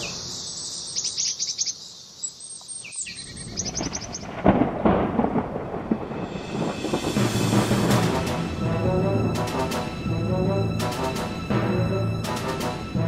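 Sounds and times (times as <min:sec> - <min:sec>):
birds chirping: 0:00.0 - 0:04.6
thunder crack and rumble: 0:03.3 - 0:10.2.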